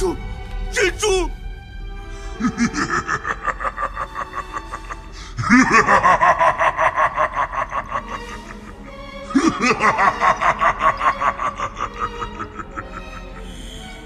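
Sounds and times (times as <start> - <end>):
background music: 0.0 - 14.0
cackling laugh: 2.4 - 14.0.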